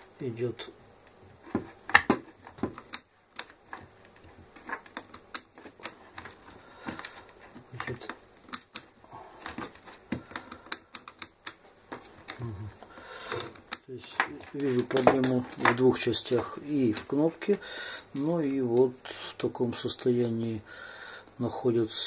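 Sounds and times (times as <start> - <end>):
plastic and metal parts clicking: 1.4 - 17.2.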